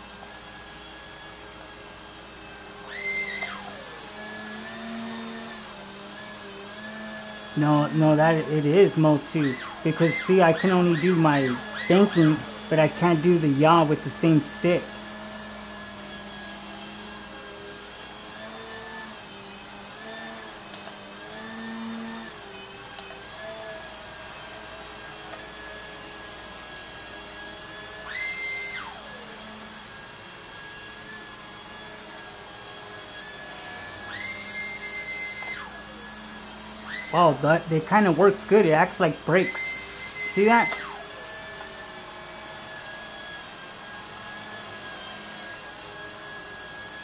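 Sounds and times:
rc helicopter rotors whining: 0.0s - 47.0s
higher whine gliding down: 34.0s - 43.2s.

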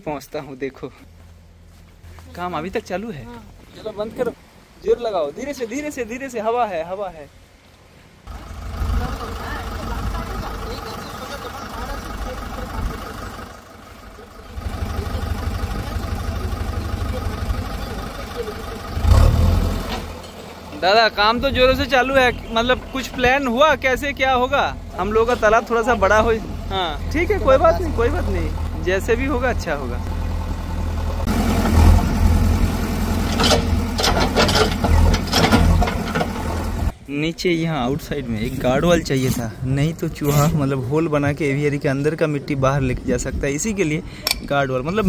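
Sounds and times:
engine running low: 8.3s - 37.0s
knocks and clatters: 33.2s - 36.9s.

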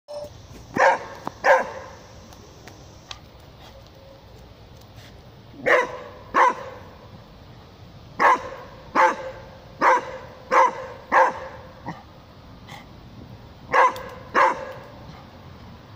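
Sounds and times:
dog barking: 0.8s - 1.9s, 5.6s - 6.9s, 8.2s - 12.0s, 13.7s - 14.9s.

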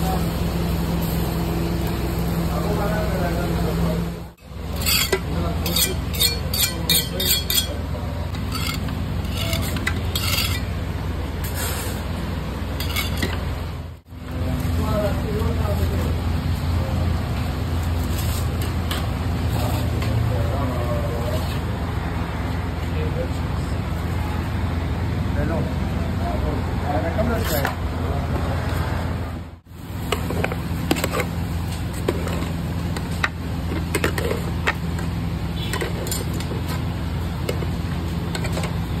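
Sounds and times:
knife scraping steel pot: 4.7s - 10.8s, 12.8s - 13.4s.

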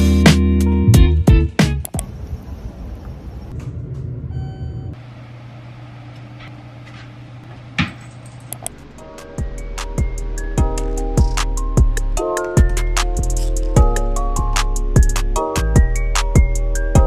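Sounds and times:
low outdoor rumble: 2.0s - 15.4s
room hum: 2.1s - 12.1s.

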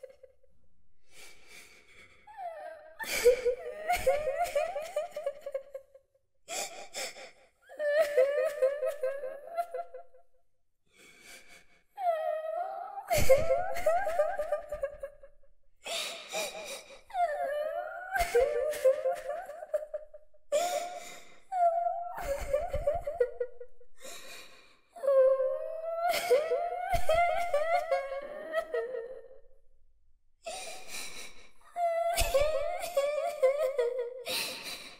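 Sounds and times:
little girl crying: 31.8s - 34.0s.

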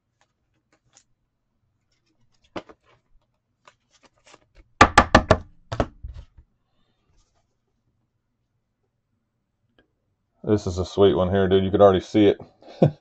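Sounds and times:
knocks on a tabletop: 4.8s - 6.0s.

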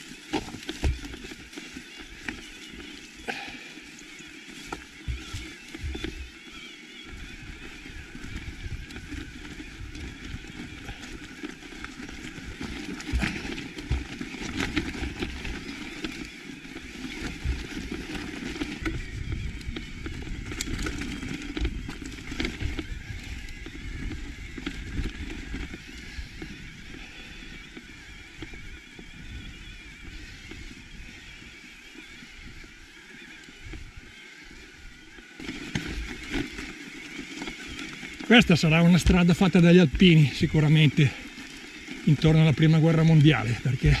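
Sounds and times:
tyres crunching over stones: 0.0s - 31.5s, 35.2s - 44.0s
bike knocks and rattles: 0.3s - 2.4s.

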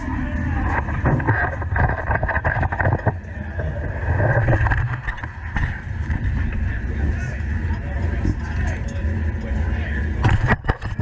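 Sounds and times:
chassis knocks and rattles: 0.7s - 3.2s.

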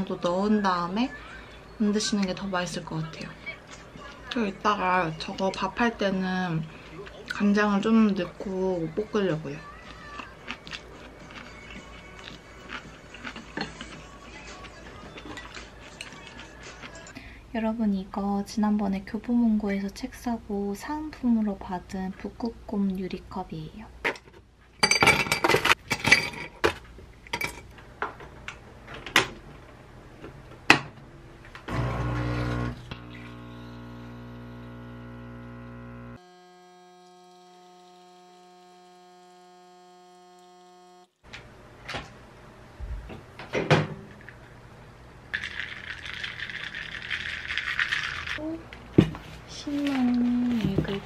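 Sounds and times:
coffee machine pump hum: 31.7s - 41.2s
ice crackling in glass: 45.4s - 48.4s
ice cubes clinking into glass: 45.4s - 48.4s.

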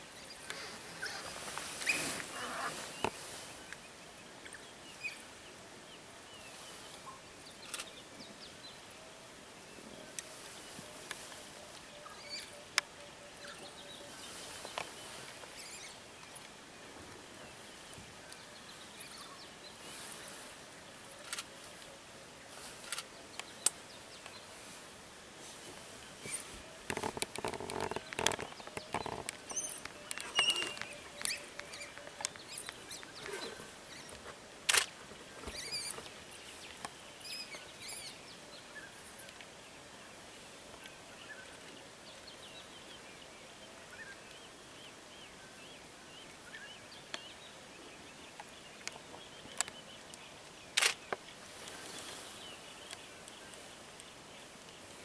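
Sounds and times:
clicks and crackles: 22.8s - 24.4s, 26.8s - 37.0s, 48.4s - 52.2s.

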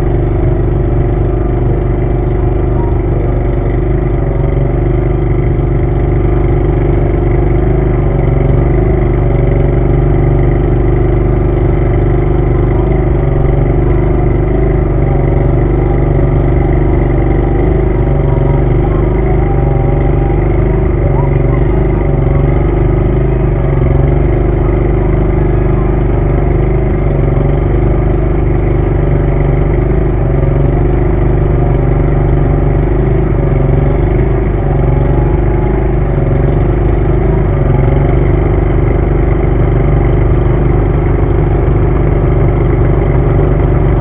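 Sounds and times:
engine idling: 0.0s - 44.0s.

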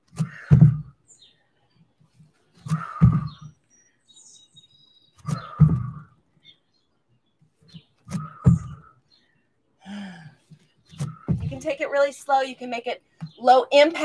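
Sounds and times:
feet landing with heavy thuds: 0.0s - 1.0s, 2.6s - 3.5s, 5.2s - 6.2s, 8.0s - 8.9s, 10.9s - 11.7s.

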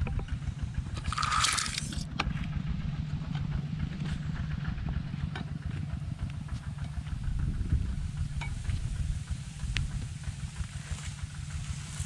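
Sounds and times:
low engine drone: 0.0s - 12.0s.

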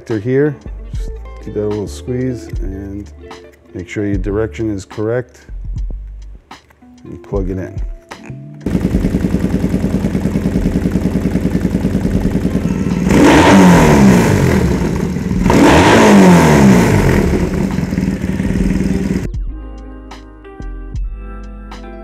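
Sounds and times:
motorcycle engine idling: 8.6s - 19.3s
motorcycle engine revving: 8.6s - 19.3s.

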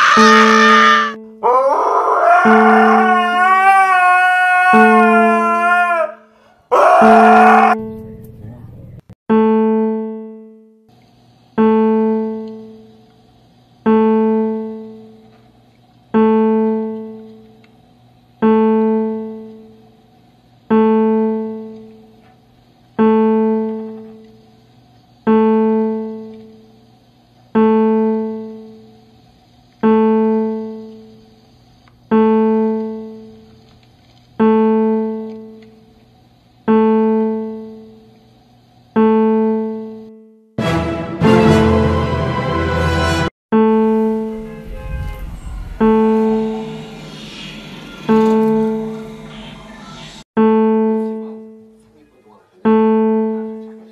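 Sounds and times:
repeated piano note: 0.0s - 1.5s, 2.3s - 3.8s, 9.3s - 10.8s, 23.0s - 24.3s, 29.8s - 31.2s, 43.5s - 49.2s, 50.4s - 52.0s, 52.6s - 53.9s.

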